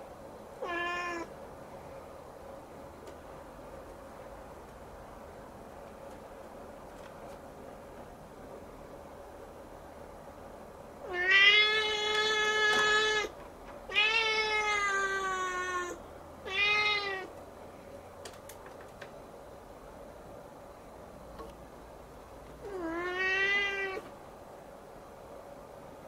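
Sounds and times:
kitten meowing: 0:00.6 - 0:01.3, 0:13.9 - 0:17.3, 0:22.7 - 0:24.1.

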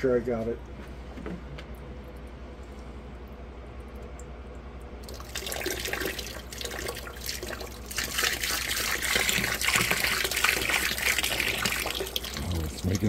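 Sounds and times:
liquid pouring and splashing: 0:05.0 - 0:13.0.

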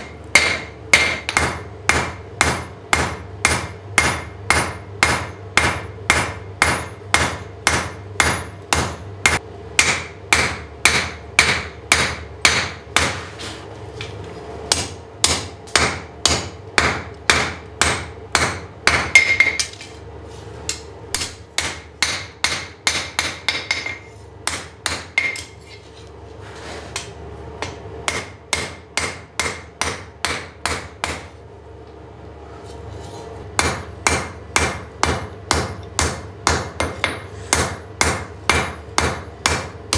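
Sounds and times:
hammer striking anvil with ringing: 0:00.0 - 0:13.2, 0:14.7 - 0:19.8, 0:20.8 - 0:25.6, 0:27.6 - 0:31.2.

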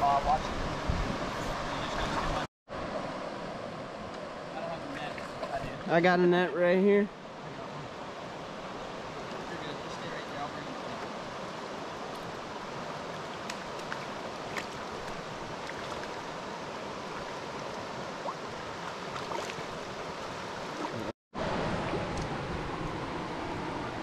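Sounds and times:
stream rushing over rocks: 0:07.3 - 0:24.0.

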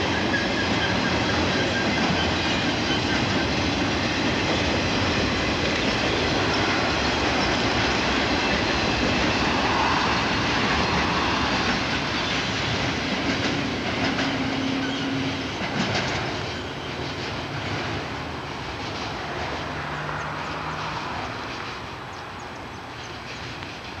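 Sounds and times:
train wheels rumbling on rail: 0:00.0 - 0:24.0
wheels clicking over rail joints: 0:11.6 - 0:24.0.

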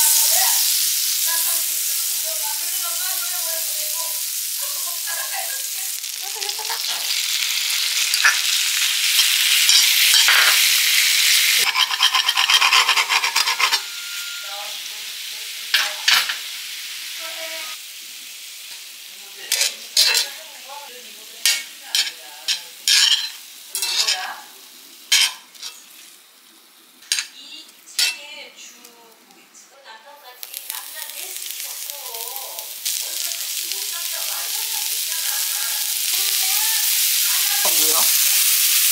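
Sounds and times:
food sizzling in frying pan: 0:00.0 - 0:29.3, 0:30.0 - 0:38.9
utensil scraping against pan: 0:11.6 - 0:14.5, 0:21.5 - 0:24.3.

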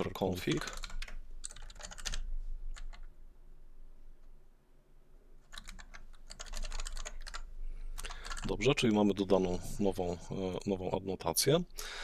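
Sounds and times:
computer keyboard typing: 0:00.5 - 0:03.1, 0:05.4 - 0:08.7.

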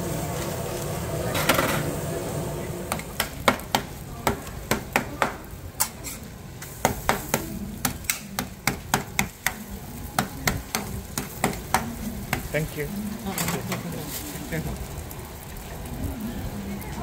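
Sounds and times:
sizzle of frying: 0:00.0 - 0:17.0
metal spatula scraping a griddle: 0:05.8 - 0:07.1.

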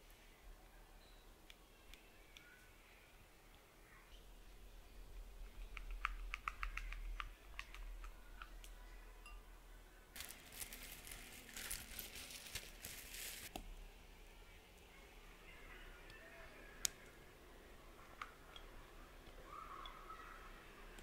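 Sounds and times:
hissy rustle of mixing: 0:10.2 - 0:13.5.

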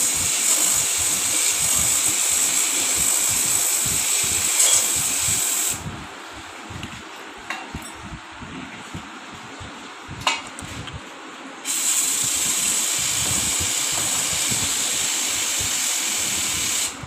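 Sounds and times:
aerosol spray hissing: 0:00.0 - 0:05.8, 0:11.7 - 0:17.0.

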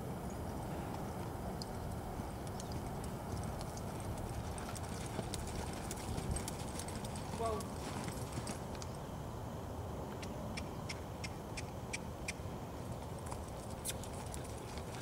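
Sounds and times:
steady low rumble: 0:00.0 - 0:15.0
horse hoofbeats in sand: 0:02.5 - 0:08.7.

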